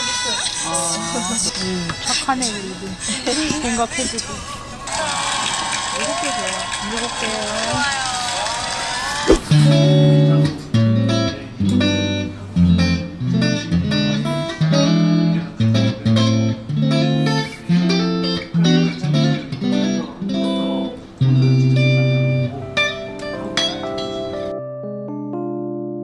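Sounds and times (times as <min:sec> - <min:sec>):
electric guitar playing: 0:09.5 - 0:24.5.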